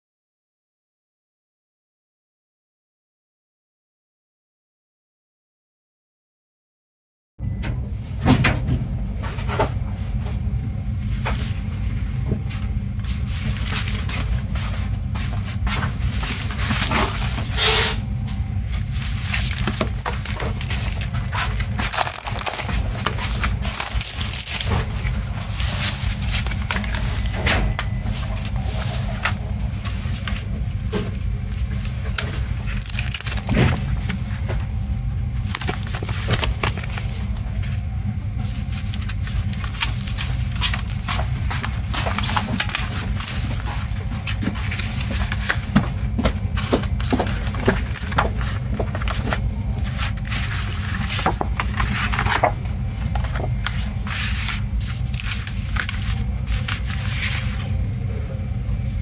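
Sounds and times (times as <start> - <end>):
steady low rumble: 7.4 - 59.0
paper rustling: 12.5 - 17.7, 18.7 - 30.5, 31.6 - 34.6, 35.4 - 37.8, 38.4 - 57.8.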